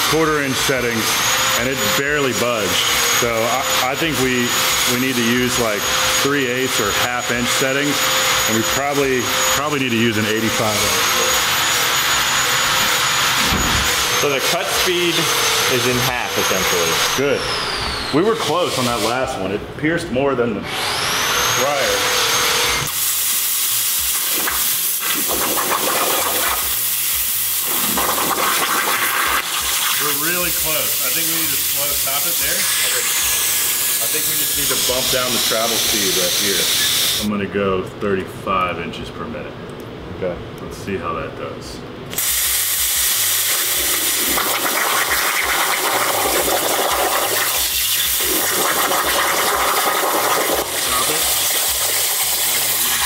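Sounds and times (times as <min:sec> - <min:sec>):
plasma cutter arc hissing: 0:22.8 - 0:37.3, 0:42.1 - 0:53.0.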